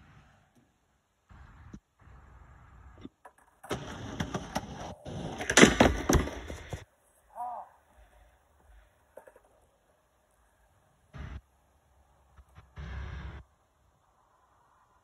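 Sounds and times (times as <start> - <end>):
skateboard wheels rolling on wood: 2.0 - 7.2, 8.2 - 11.0
skateboard knocks at plank gaps: 3.2 - 6.8
skateboard slapping and clacking: 3.2 - 6.8.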